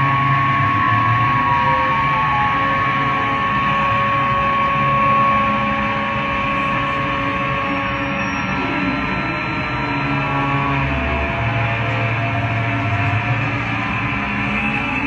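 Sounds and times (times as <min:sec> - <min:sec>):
droning noise music: 0:00.0 - 0:15.0.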